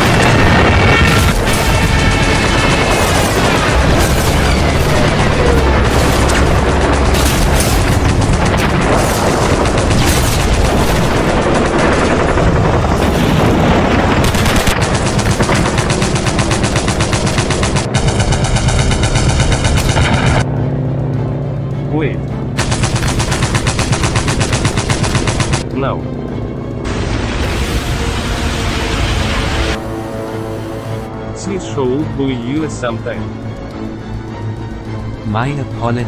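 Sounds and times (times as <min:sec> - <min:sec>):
machine-gun fire: 0:00.0 - 0:20.4, 0:22.6 - 0:25.6.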